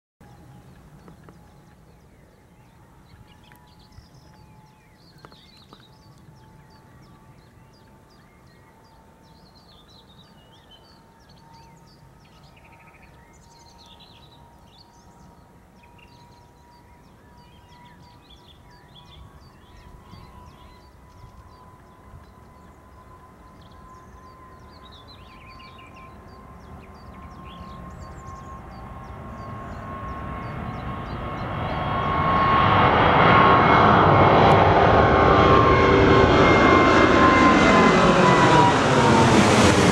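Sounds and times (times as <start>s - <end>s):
birds chirping: 0.2s - 39.9s
jet engines spooling up: 27.0s - 39.9s.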